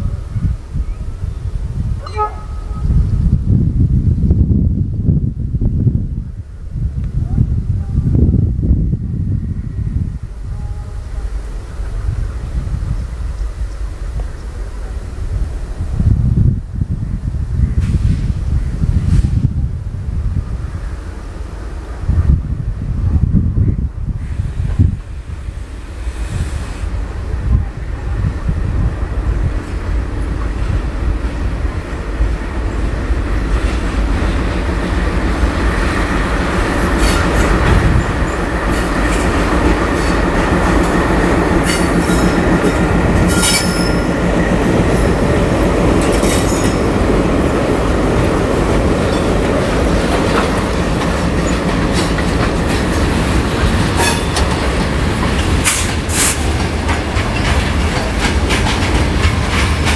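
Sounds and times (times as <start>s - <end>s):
diesel locomotive engine rumble: 0.0s - 59.9s
wagon wheels clattering over rails: 48.9s - 59.9s.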